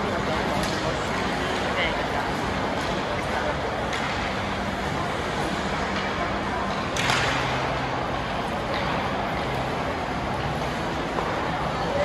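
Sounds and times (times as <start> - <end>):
ice rink noise: 0.0 - 12.0
sharp crack of puck or stick: 0.5 - 1.1, 6.9 - 7.8.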